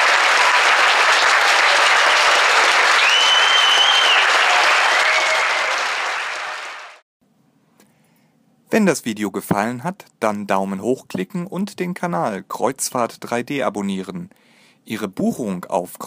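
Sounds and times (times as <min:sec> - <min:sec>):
audience applauding: 0:00.0 - 0:07.0
shrill whistle from crowd: 0:02.8 - 0:05.8.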